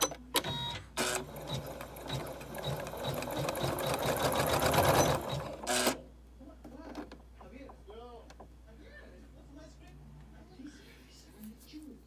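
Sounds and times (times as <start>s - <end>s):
sewing machine needle stitching: 0.0s - 6.0s.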